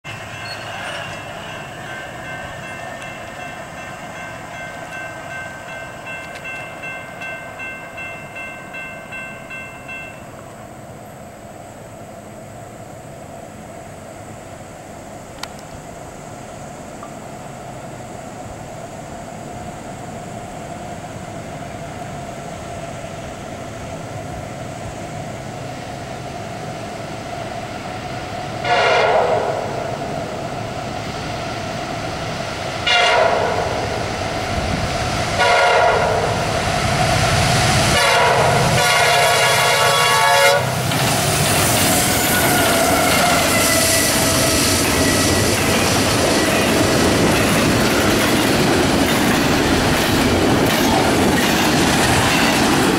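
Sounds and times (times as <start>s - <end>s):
diesel locomotives rumbling: 0.0s - 52.9s
train wheel clatter: 0.1s - 7.4s, 40.8s - 52.9s
multi-tone train air horn: 28.6s - 29.8s, 32.8s - 33.8s, 35.4s - 36.4s, 37.9s - 40.8s, 42.0s - 45.4s.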